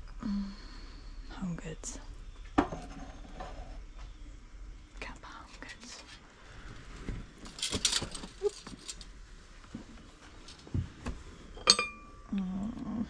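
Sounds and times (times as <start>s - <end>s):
decorations rustling: 5.4s - 12.3s
ceramic clinking on a plate: 11.6s - 12.3s
person humming: 12.3s - 13.0s.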